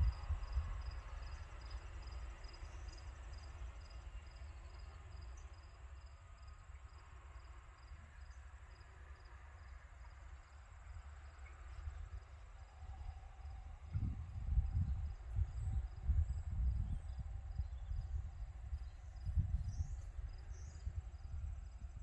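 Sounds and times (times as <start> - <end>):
cricket chirping: 0.0 - 22.0.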